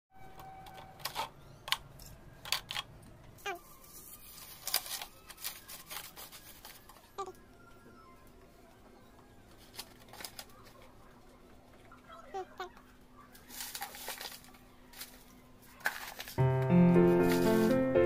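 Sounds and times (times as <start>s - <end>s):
plastic bottle crinkling: 13.4s - 17.8s
dry grass stalks crackling: 13.4s - 18.0s.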